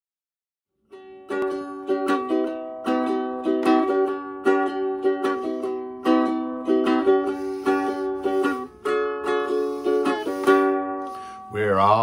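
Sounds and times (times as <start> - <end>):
ukulele strummed rhythmically: 0.8 - 11.5.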